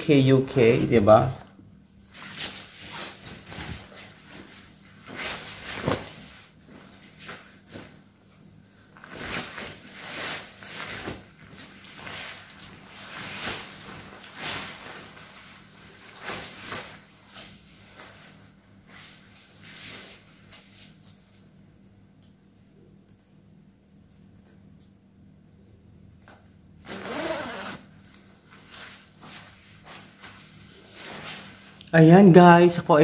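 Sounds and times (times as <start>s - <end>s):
plastic suit and jacket rustling: 2.0s - 8.2s, 8.8s - 20.9s, 26.9s - 31.8s.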